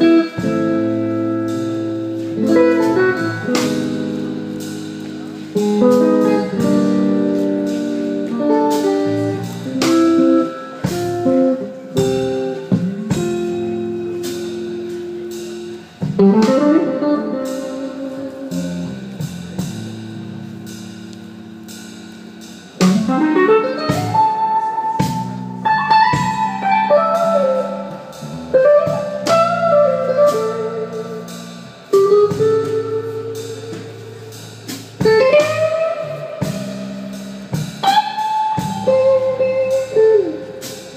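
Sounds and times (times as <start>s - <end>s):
electric guitar playing: 0.0s - 40.9s.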